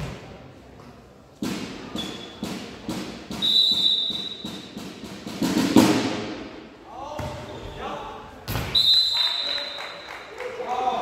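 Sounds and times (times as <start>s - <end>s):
referee's whistle: 3.4s - 4.7s, 8.7s - 10.1s
volleyball bouncing on hall floor: 7.1s - 7.6s, 8.4s - 8.8s.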